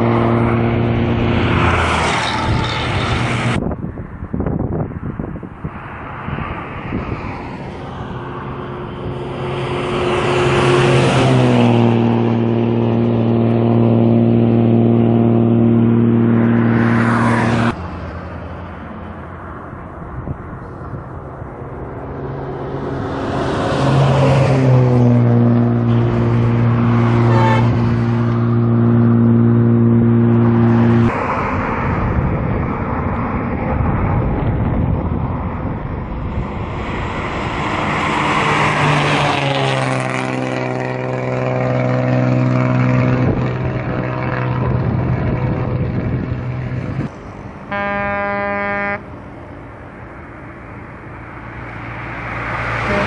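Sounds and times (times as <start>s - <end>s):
buses passing at high speed: 0.0s - 53.0s
bus horn blast: 25.2s - 28.6s, 47.7s - 49.2s.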